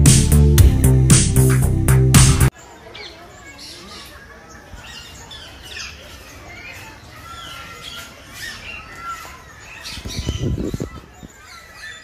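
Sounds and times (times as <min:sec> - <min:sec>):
parakeets squawking and chirping: 0:03.0 - 0:12.0.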